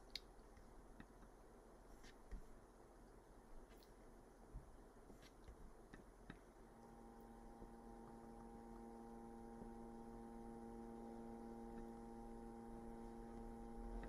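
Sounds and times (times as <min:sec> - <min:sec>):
faint mains hum: 0:00.0 - 0:14.0
sine-wave test tone: 0:06.3 - 0:14.0.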